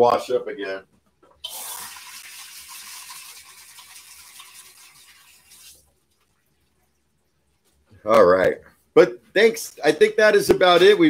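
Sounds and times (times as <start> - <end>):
tap water running: 1.4 - 6.7.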